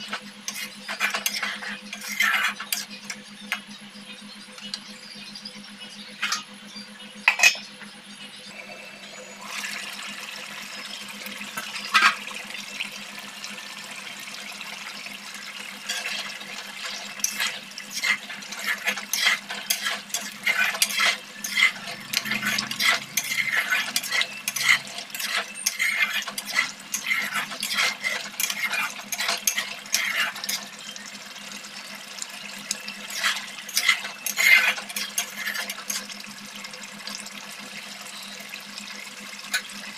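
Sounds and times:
curry bubbling in a wok: 0:00.0 - 0:03.6, 0:09.2 - 0:39.9
metal spoon clinking on pan: 0:07.3 - 0:07.7, 0:15.9 - 0:30.7, 0:33.1 - 0:36.1.

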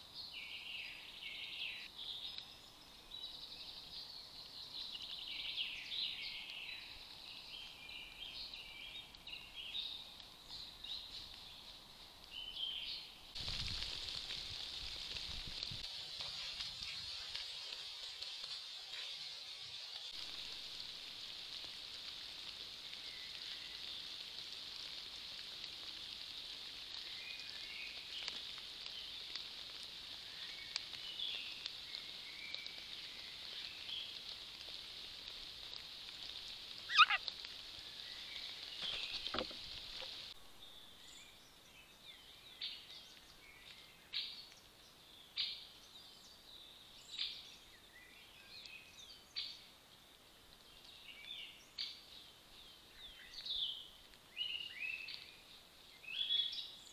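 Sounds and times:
steady high hiss: 0:00.0 - 0:56.9
wild birds calling and singing: 0:36.8 - 0:49.7.

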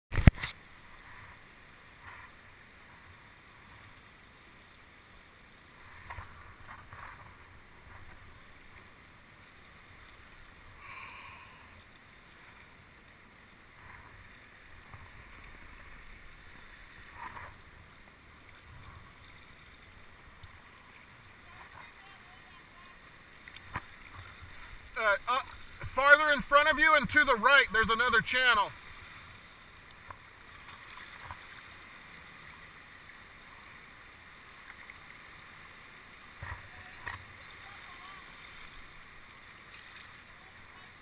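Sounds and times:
water lapping around kayak: 0:00.1 - 0:41.0
soft splashes: 0:28.7 - 0:41.0.

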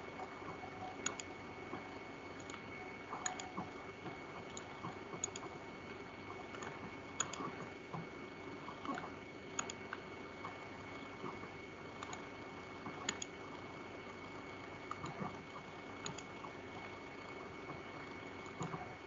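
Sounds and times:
faint high whine: 0:00.0 - 0:19.0
computer mouse clicks: 0:00.5 - 0:05.6, 0:06.3 - 0:08.1, 0:08.7 - 0:11.4, 0:12.0 - 0:12.3, 0:12.9 - 0:13.6, 0:14.8 - 0:15.4, 0:16.0 - 0:16.9, 0:18.4 - 0:19.0.

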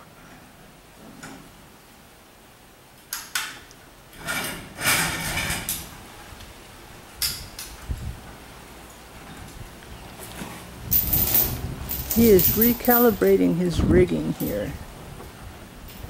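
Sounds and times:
metal clinks: 0:10.9 - 0:13.4
chain rattling scrape: 0:10.9 - 0:13.5
metal chain clanking: 0:10.9 - 0:13.5.

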